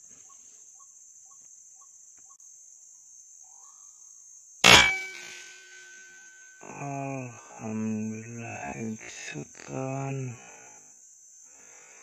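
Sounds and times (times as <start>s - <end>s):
faint chirps: 0.0s - 12.0s
high insect buzz: 0.0s - 12.0s
air rifle shot: 4.6s - 6.0s.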